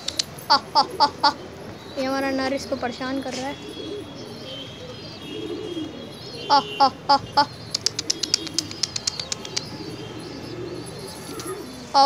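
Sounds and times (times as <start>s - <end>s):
pigeons cooing: 0.0s - 12.0s
high chirps: 3.0s - 12.0s
loud short bird calls: 3.2s - 12.0s.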